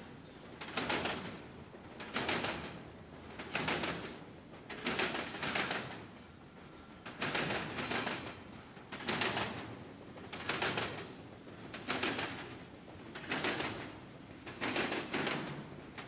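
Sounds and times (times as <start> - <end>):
train wheels clacking over crossing: 0.0 - 16.0.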